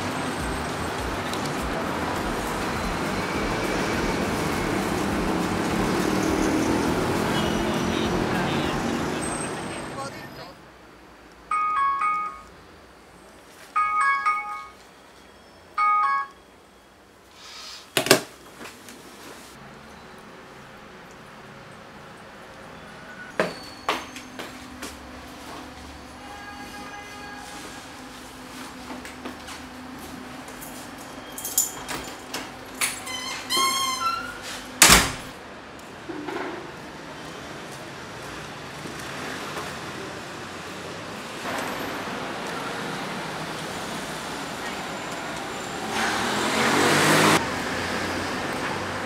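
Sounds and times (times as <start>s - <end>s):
faint street background: 0.0s - 49.0s
bell-like chime jingle: 11.5s - 12.5s, 13.8s - 16.8s
hiss: 17.3s - 18.0s
door squeaking: 32.8s - 35.2s
door banging shut: 34.8s - 35.4s.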